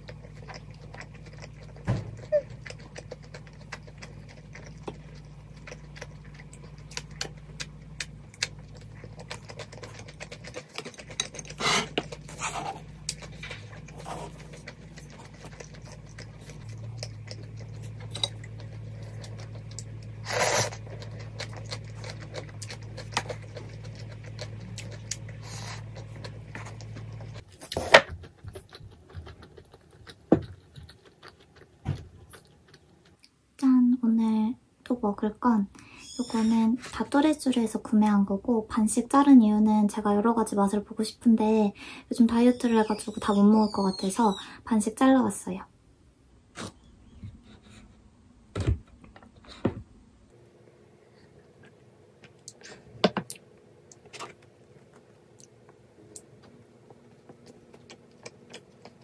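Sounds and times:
steady low hum: 0.0s - 59.0s
slurping noodles: 20.2s - 23.9s.

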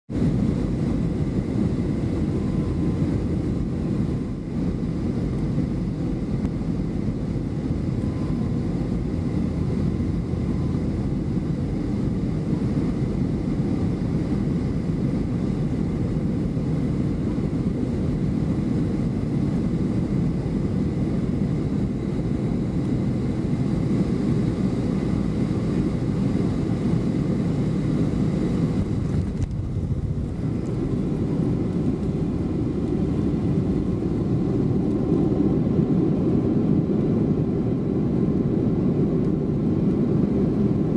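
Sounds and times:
jet engines and rushing air roar: 0.1s - 40.9s
faint high whine: 0.2s - 40.9s.

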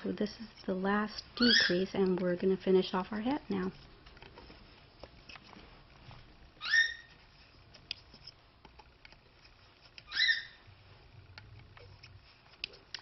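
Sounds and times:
short rising squeaky chirps: 6.6s - 7.1s, 10.1s - 10.6s.

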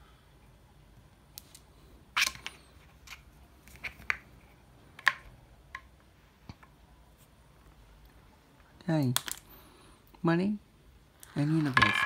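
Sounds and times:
marbles and track clicking: 11.2s - 12.0s.

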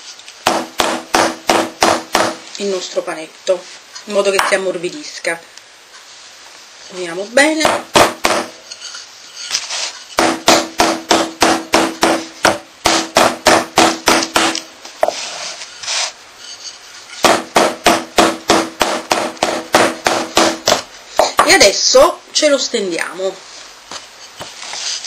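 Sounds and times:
rolling pin beating dough: 0.4s - 2.5s, 7.4s - 21.6s.

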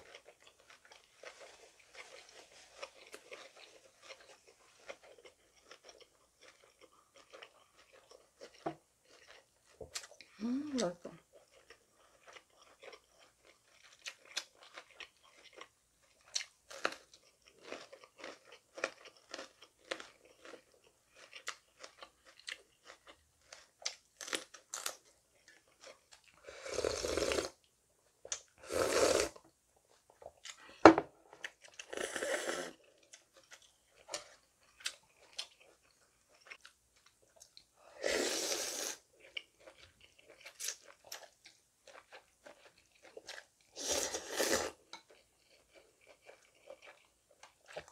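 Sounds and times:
crunching and chewing chili pepper: 0.0s - 28.6s, 32.7s - 37.8s, 39.0s - 47.9s
slurping broth from bowl: 28.6s - 29.4s, 31.9s - 32.8s, 38.0s - 39.0s, 43.8s - 44.8s.

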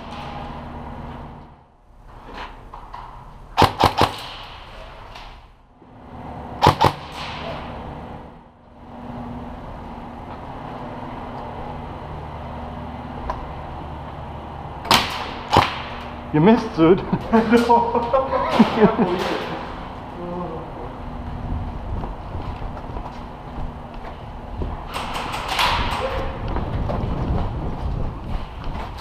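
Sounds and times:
steady background hum: 0.0s - 29.0s
airsoft gun shots: 3.6s - 4.8s, 6.6s - 7.7s, 14.9s - 16.0s.

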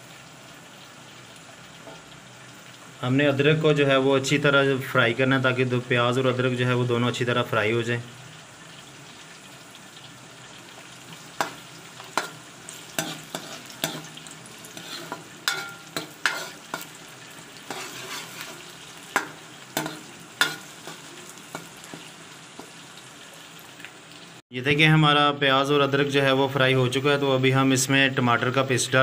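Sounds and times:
onion sizzling in oil: 0.0s - 24.4s
metal spoon scraping pot: 13.0s - 16.9s, 17.6s - 21.0s.

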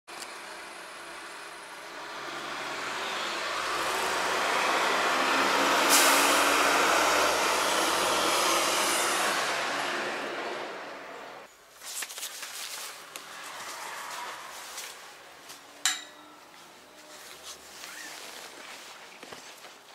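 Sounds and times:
bus passing by: 0.2s - 11.5s.

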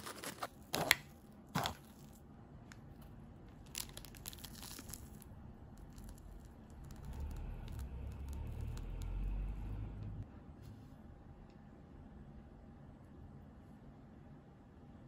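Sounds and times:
plastic crinkling and rustling: 3.5s - 8.9s
low handling rumble: 5.2s - 10.3s.

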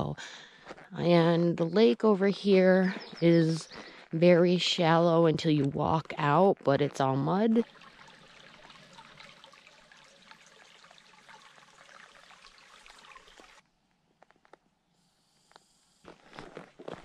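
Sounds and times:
footsteps: 0.0s - 7.8s, 16.0s - 17.0s
water trickling and lapping: 5.5s - 13.6s.

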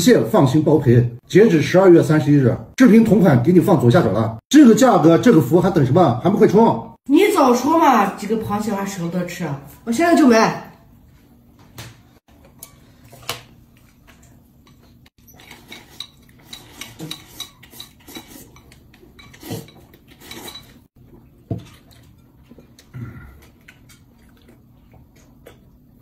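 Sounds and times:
chopsticks clinking on porcelain bowl: 14.6s - 20.8s.

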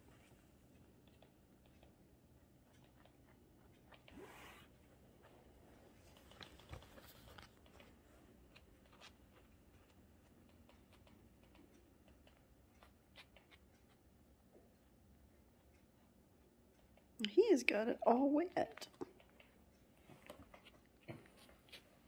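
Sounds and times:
soft rustle: 0.0s - 1.8s, 2.7s - 14.0s, 18.8s - 22.0s.

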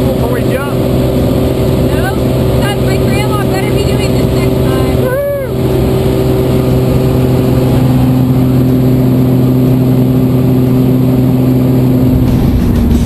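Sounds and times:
small plane engine and propeller droning: 0.0s - 13.0s
rush of air: 11.9s - 13.0s.

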